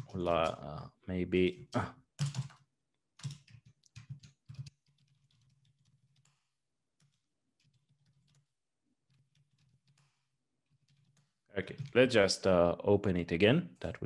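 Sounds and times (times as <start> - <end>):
computer keyboard typing: 2.2 - 12.1.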